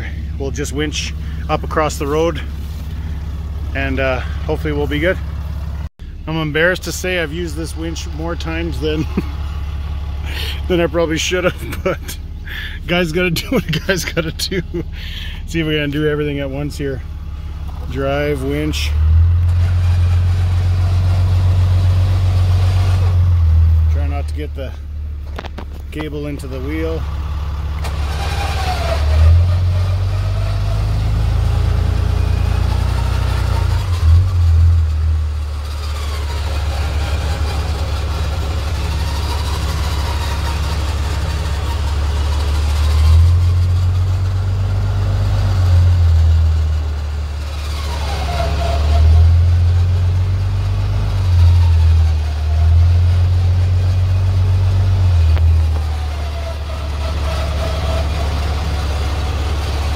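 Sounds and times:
truck engine revving: 0.0 - 59.9
electric winch motor whine: 35.4 - 44.0.

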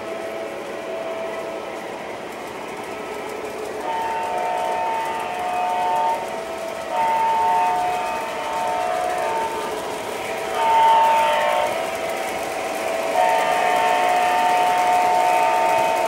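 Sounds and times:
model train motors whirring: 0.0 - 16.0
model locomotive horn blasts: 3.8 - 12.1, 12.8 - 16.0.

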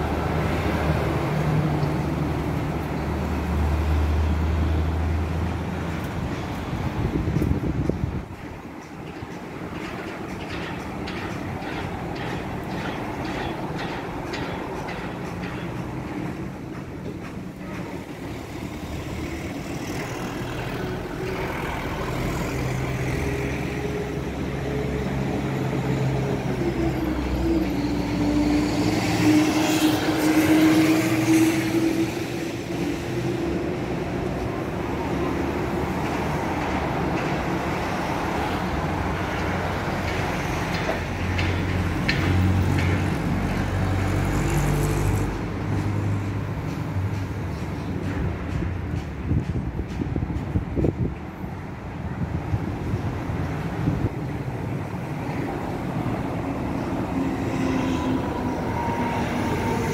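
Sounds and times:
road traffic passing: 0.0 - 59.9.

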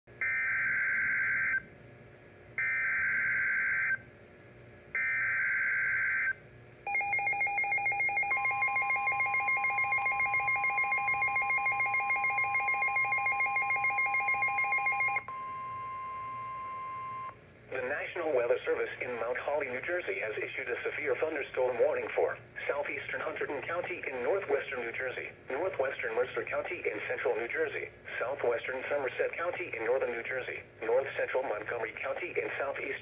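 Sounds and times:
rapid pulsing alarm beep: 0.2 - 1.6, 2.6 - 4.0, 6.9 - 17.4
steady warning tone: 5.0 - 17.9.

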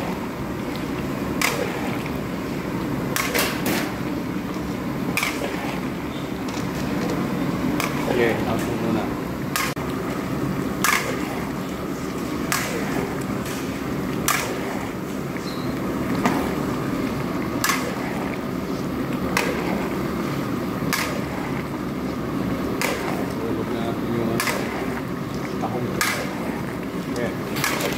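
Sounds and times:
burner and simmering rice rush: 0.0 - 27.9.

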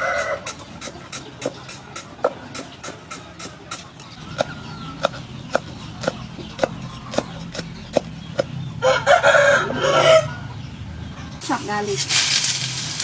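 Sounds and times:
rooster crowing: 0.0 - 0.4, 8.8 - 10.6.

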